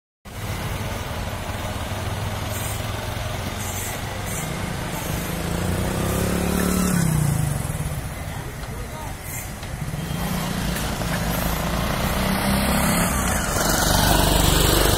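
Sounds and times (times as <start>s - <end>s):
vehicle engines humming: 0.3s - 14.9s
vehicle passing close by: 4.2s - 8.0s, 9.9s - 14.9s.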